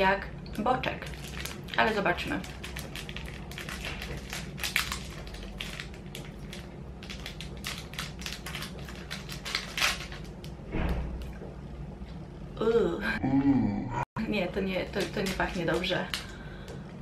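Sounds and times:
plastic packet crinkling and tearing: 1.0s - 10.6s, 14.8s - 16.3s.

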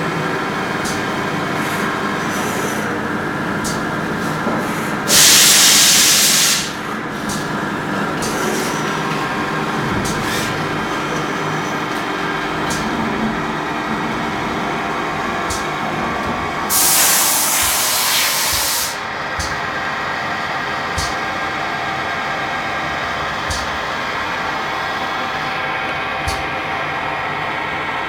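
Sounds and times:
spray hissing: 5.1s - 6.7s, 16.7s - 19.0s
machine hum: 6.8s - 28.0s.

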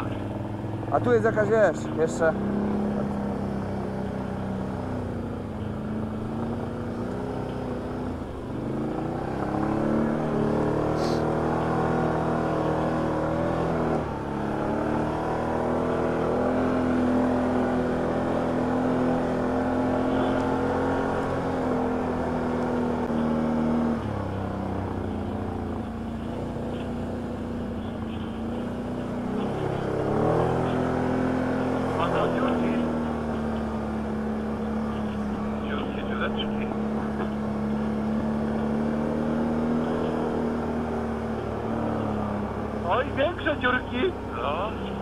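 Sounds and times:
atv engine running under throttle: 0.0s - 45.0s.

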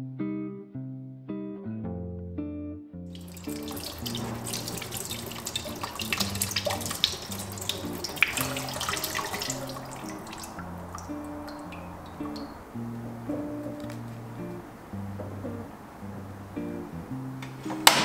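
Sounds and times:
soft acoustic guitar music: 0.0s - 18.0s
bristle brush scrubbing potatoes: 3.2s - 11.9s
tap water splashing into sink: 3.2s - 14.6s, 17.4s - 18.0s.

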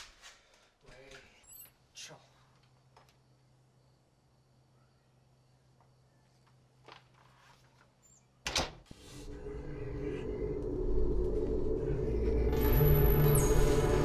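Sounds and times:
wooden door banging shut: 8.4s - 8.9s
eerie horror drone: 9.2s - 14.0s.

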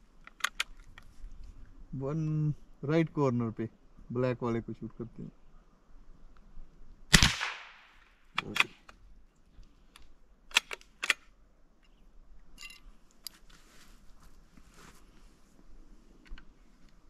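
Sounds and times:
rifle action metallic clicks: 0.2s - 1.0s, 8.4s - 9.0s, 9.9s - 11.3s
rifle shot with echo: 7.1s - 8.7s.

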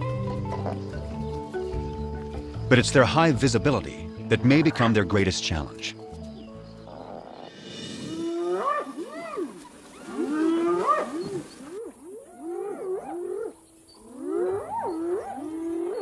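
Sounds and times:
hyenas whooping: 6.9s - 16.0s.

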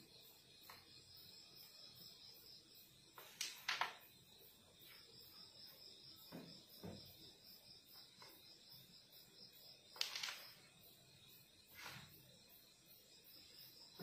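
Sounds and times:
soft knocks on wooden board: 6.3s - 7.2s.

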